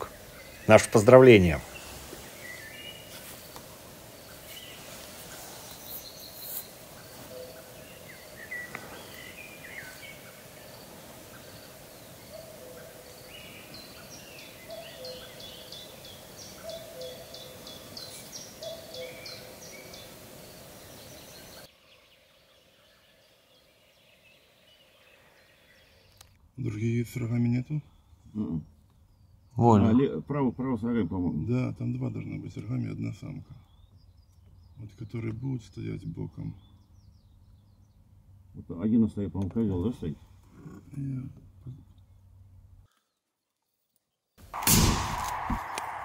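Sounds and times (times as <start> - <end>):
bird chirps and trills: 4.2 - 26.2.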